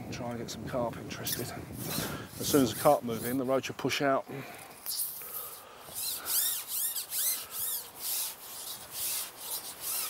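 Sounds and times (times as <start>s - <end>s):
fishing pole rubbing over roller: 1.3s - 3.5s, 4.7s - 10.0s.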